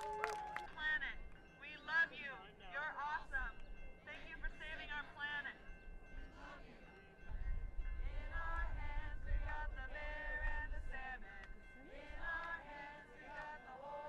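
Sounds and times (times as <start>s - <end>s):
group of voices singing: 6.1s - 7.1s, 8.0s - 14.0s.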